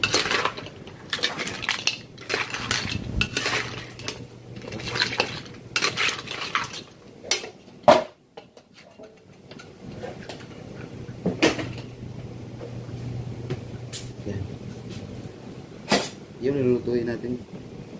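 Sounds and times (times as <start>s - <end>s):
metal spatula scraping a wok: 0.0s - 7.5s.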